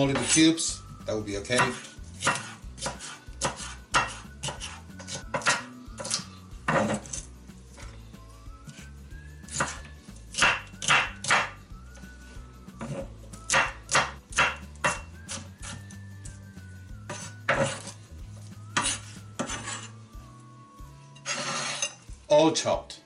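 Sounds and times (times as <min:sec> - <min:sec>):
knife chopping on cutting board: 0:00.1 - 0:00.4, 0:01.5 - 0:07.3, 0:09.5 - 0:11.6, 0:12.8 - 0:15.8, 0:17.1 - 0:18.0, 0:18.7 - 0:19.8.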